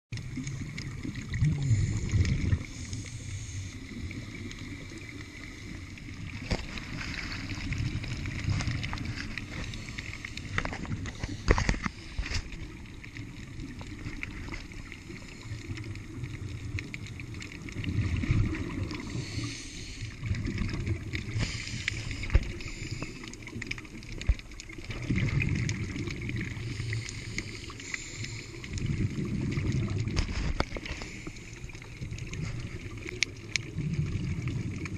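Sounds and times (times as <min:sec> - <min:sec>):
exhaled air bubbling: 0:00.1 - 0:34.9
steady underwater hiss: 0:00.2 - 0:34.9
diver breathing through regulator: 0:18.9 - 0:20.2, 0:21.3 - 0:23.4, 0:26.5 - 0:28.8.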